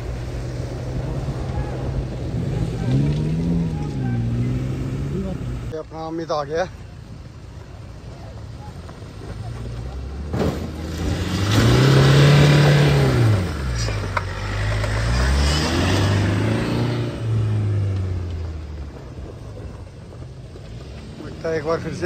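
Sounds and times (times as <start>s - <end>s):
diesel engine revving: 0.0s - 5.8s, 8.9s - 22.0s.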